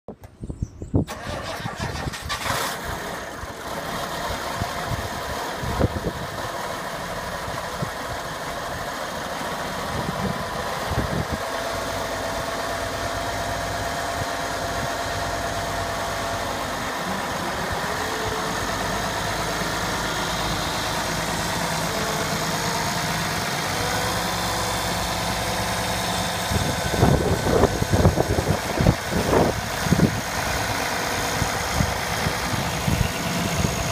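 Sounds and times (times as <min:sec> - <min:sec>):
diesel tractor engine idling: 0:01.1 - 0:33.9.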